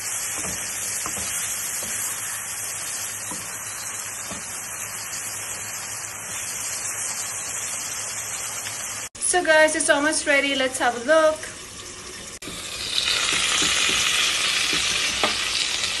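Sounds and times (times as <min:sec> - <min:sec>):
food sizzling in a wok: 0:00.0 - 0:16.0.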